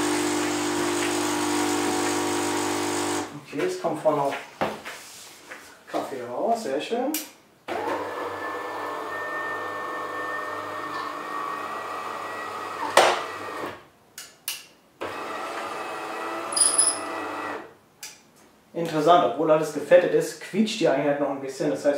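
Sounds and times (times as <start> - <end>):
coffee machine motor whine: 0.0 - 3.3.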